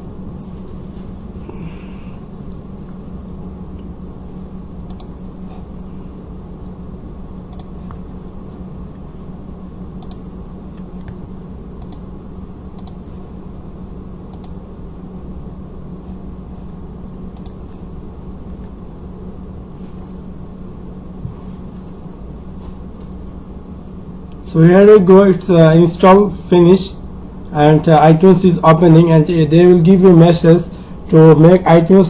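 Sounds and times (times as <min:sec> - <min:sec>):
low electrical hum and hiss: 0:00.0 - 0:32.0
computer mouse clicking: 0:04.9 - 0:05.1, 0:07.5 - 0:07.7, 0:10.0 - 0:10.2, 0:11.8 - 0:12.0, 0:12.8 - 0:13.0, 0:14.3 - 0:14.6, 0:17.4 - 0:17.6.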